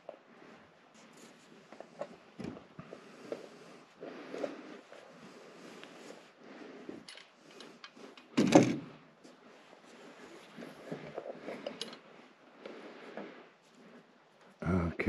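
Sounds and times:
loud wooden thump: 8.4 - 8.9.

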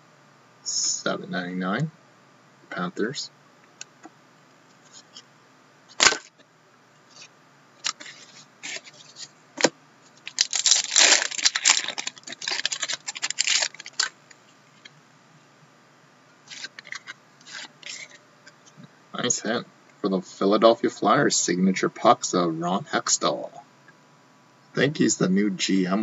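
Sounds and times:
foil wrapper tearing and crinkling: 5.9 - 6.3, 9.6 - 14.2, 16.5 - 18.2.

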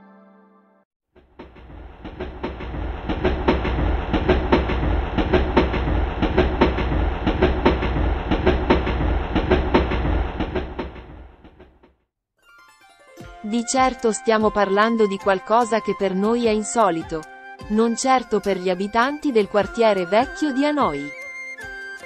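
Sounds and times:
low train rumble: 1.2 - 11.8
train wheels clattering: 1.2 - 11.8.

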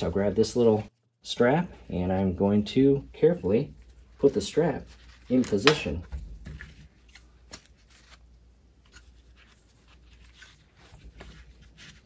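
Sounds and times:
strap rustling and scuffing: 3.8 - 12.0.

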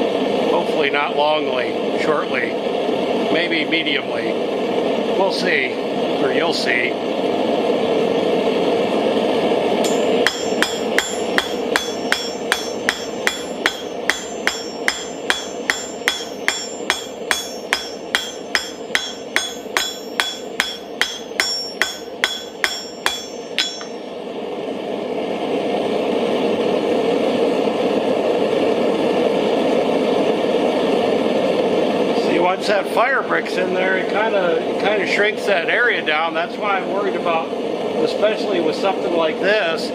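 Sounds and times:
forge burner roar: 0.0 - 39.9
hammer striking steel on anvil: 9.8 - 24.2.

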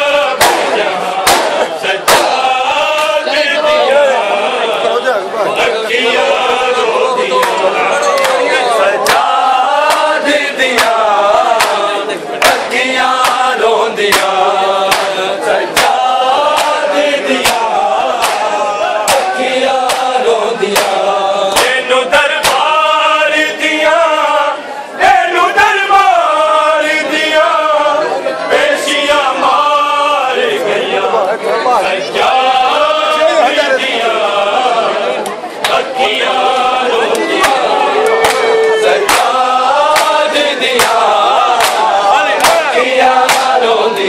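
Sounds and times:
voices joining in chant: 0.0 - 44.0
chest-beating claps: 0.4 - 2.4, 7.4 - 21.8, 35.2 - 35.8, 37.1 - 43.6.

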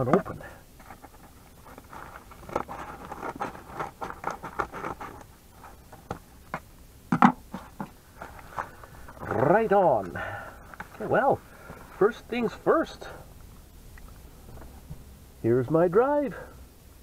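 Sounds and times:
paper crinkling: 0.8 - 6.6, 7.5 - 9.6
scissors cutting paper mailer: 1.7 - 5.3.

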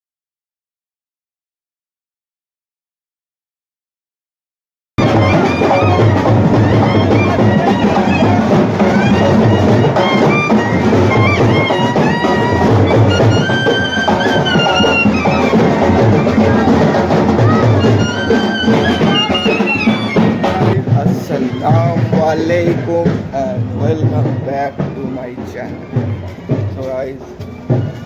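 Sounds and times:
wavering melody line: 5.0 - 20.8
music with drums and percussion: 5.0 - 28.0.

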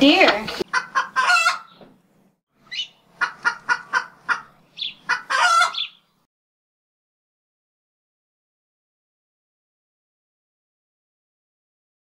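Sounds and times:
chicken clucking: 0.2 - 1.8, 2.7 - 6.0
chicken squawking: 0.6 - 1.8, 2.6 - 6.0.

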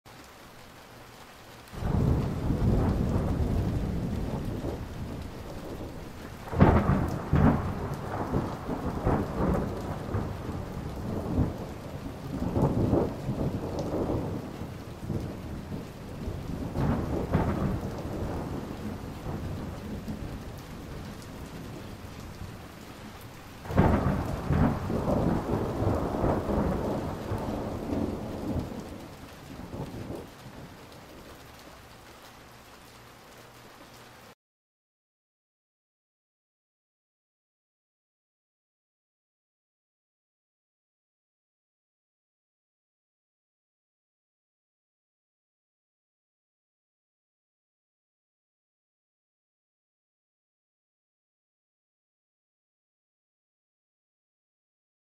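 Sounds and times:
steady rain: 0.1 - 34.4
thunder rumbling and clapping: 1.8 - 31.3.

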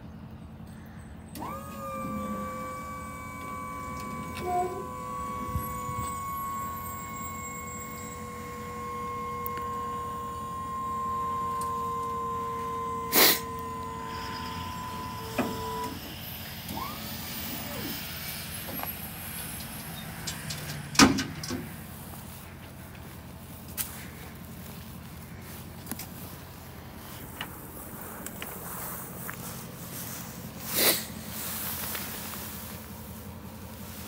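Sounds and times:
hydraulic pump motor whining: 1.3 - 21.9.

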